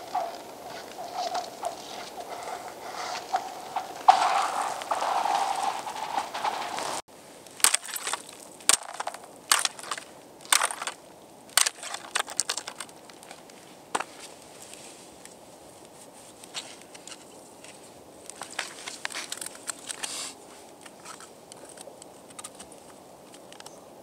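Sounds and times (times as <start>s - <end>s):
ice skates gliding on ice: 0.0s - 7.0s
ice pole chipping ice: 0.9s - 13.0s.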